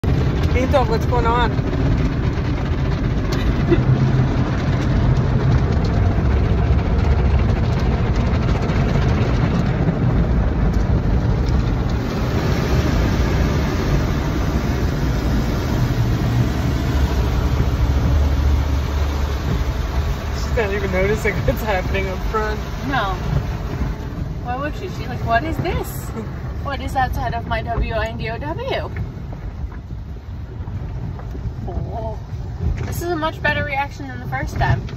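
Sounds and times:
water spray: 0:11.9 - 0:26.2.

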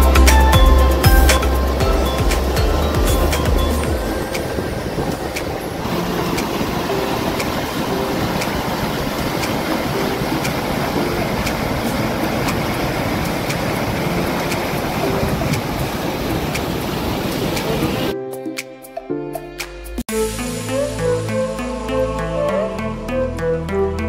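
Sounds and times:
floodwater rushing over weir: 0:00.0 - 0:18.1.

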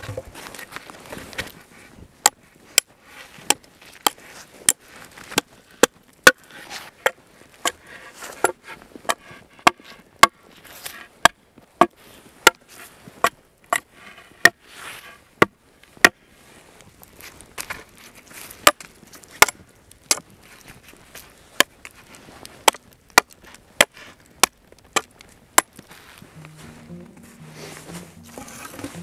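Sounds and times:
axe chopping wood: 0:22.6 - 0:25.8.

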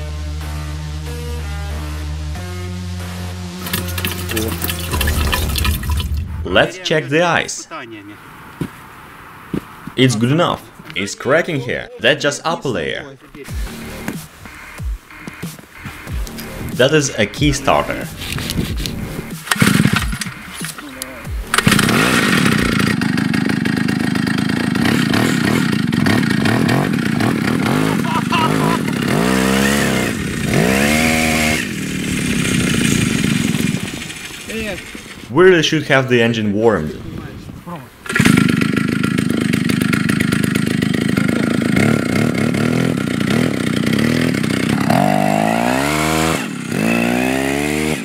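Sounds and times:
two-stroke engine revving: 0:03.4 - 0:06.7, 0:13.5 - 0:35.3, 0:38.0 - 0:48.0.

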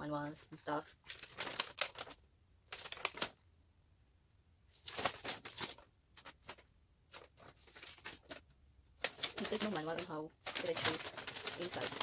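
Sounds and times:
paper leaflets rustling: 0:00.9 - 0:03.4, 0:04.7 - 0:12.0.

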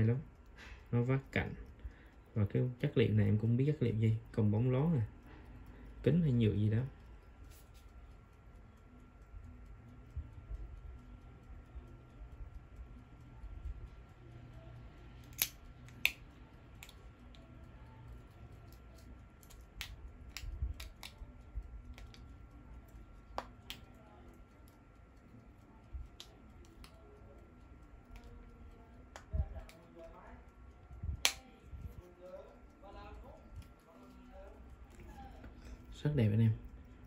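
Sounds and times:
faint low hum: 0:00.0 - 0:37.0
wristwatch clicks and taps: 0:15.1 - 0:32.5.

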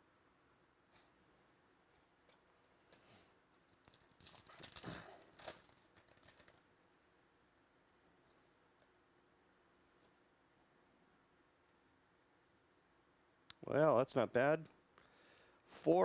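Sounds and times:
foil wrapper tearing and crinkling: 0:03.7 - 0:06.8.

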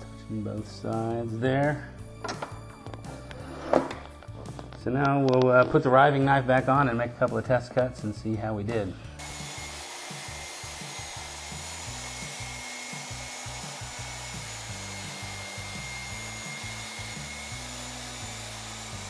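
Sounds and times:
background music with bass line: 0:00.0 - 0:19.0
table saw whirring: 0:09.2 - 0:19.0.

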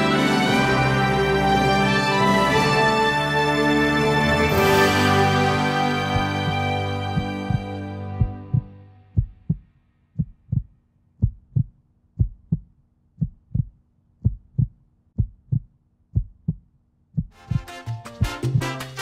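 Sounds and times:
music: 0:00.0 - 0:09.2, 0:17.3 - 0:19.0
heartbeat thumps: 0:06.1 - 0:18.7.

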